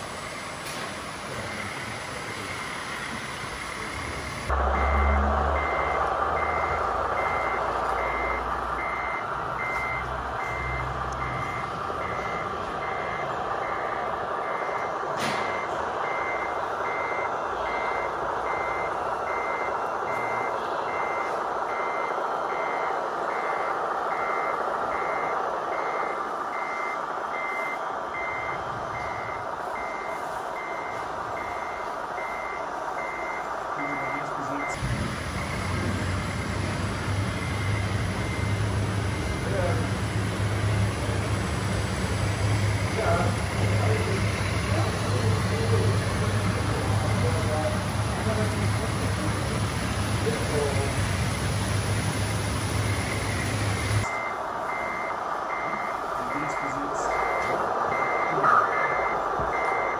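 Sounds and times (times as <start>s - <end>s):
mechanical hum: 0.0s - 59.9s
reverse-warning beeper: 0.0s - 59.9s.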